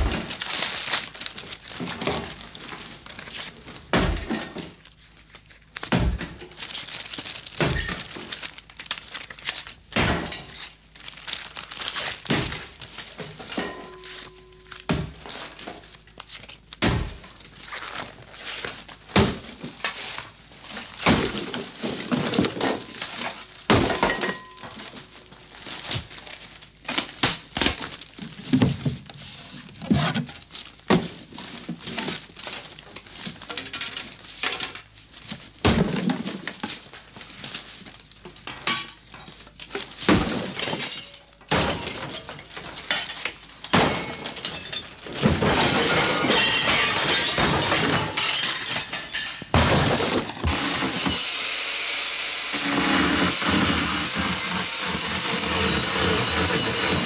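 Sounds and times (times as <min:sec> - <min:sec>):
paper tearing and crumpling: 0:00.0 - 0:03.9, 0:04.7 - 0:13.2, 0:14.1 - 0:23.8, 0:49.8 - 0:57.0
objects smashing and breaking: 0:05.9 - 0:08.7, 0:20.9 - 0:24.9, 0:40.0 - 0:51.4.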